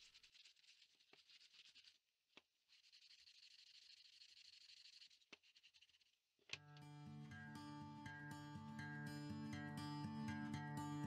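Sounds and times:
sandpaper rasping on wood: 0.0 - 2.0, 2.7 - 6.0.

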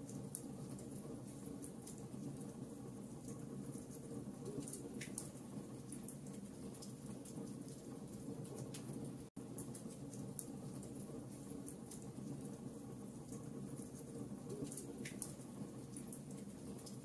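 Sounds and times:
wood fire crackling: 0.0 - 17.0.

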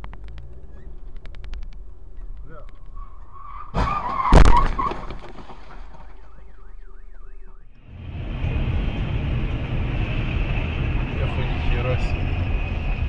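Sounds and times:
car alarm warbling: 6.1 - 7.8.

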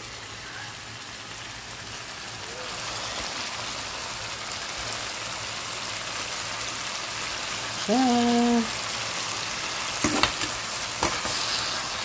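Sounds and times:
fish sizzling in a pan: 0.0 - 12.0.

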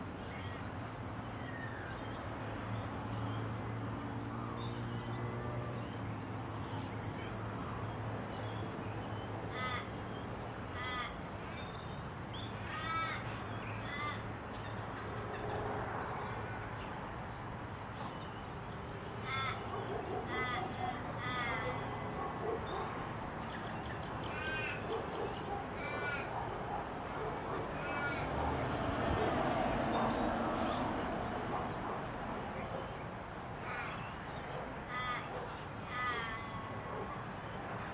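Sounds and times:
crows cawing: 9.5 - 9.9, 10.8 - 11.2, 12.6 - 14.2, 19.2 - 19.7, 20.3 - 21.8, 24.3 - 24.9, 25.8 - 26.4, 27.8 - 28.3, 33.6 - 34.1, 34.9 - 36.7.

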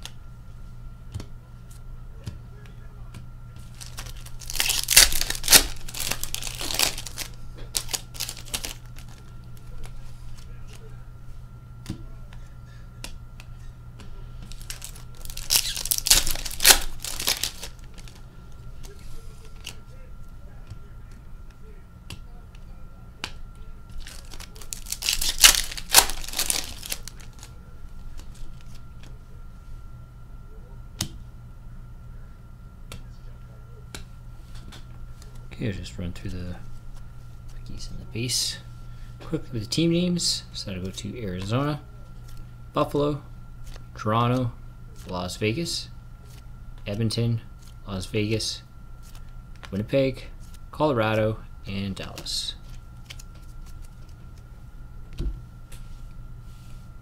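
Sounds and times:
cards clicking: 3.1 - 10.8, 14.4 - 18.2, 24.0 - 27.5, 53.0 - 54.5
foil wrapper tearing and crinkling: 3.7 - 9.9, 14.5 - 18.2, 24.0 - 27.5.

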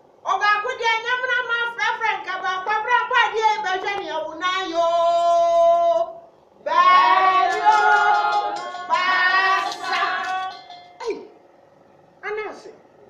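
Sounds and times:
woman singing unaccompanied: 2.3 - 10.6.

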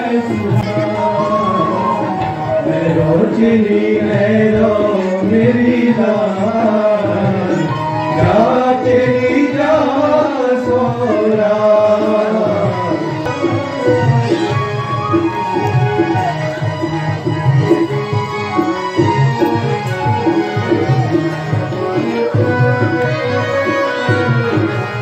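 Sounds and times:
person singing: 0.0 - 16.6
tabla drumming: 0.0 - 25.0.

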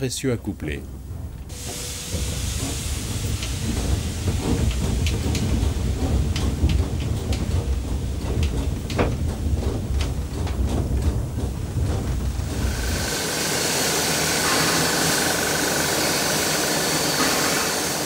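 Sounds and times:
locomotive low rumble: 0.0 - 18.0
running gear clicks and clanks: 1.3 - 13.2
steam hissing: 1.5 - 10.5, 11.3 - 18.0.

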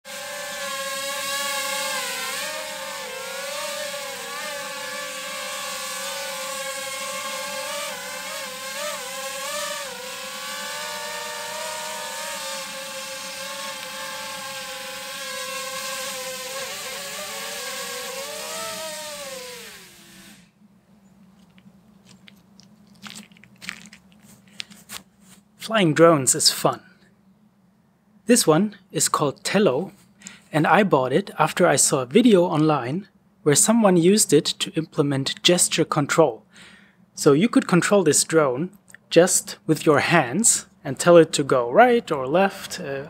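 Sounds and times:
drone propellers buzzing: 0.0 - 20.7
drone motors winding down: 0.1 - 20.6.

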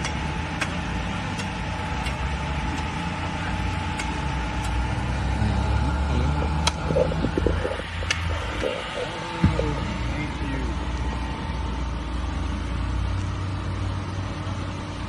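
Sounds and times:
road traffic hum: 0.0 - 15.0
machete chopping coconut: 3.8 - 4.8.

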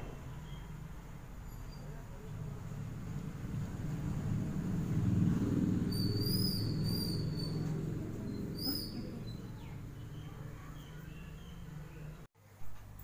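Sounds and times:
bird-like chirps: 6.0 - 7.7.

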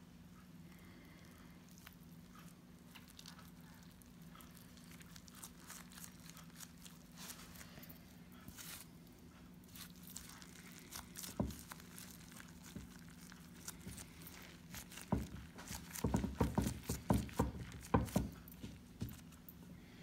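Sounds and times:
cloth rustling: 4.0 - 19.7.

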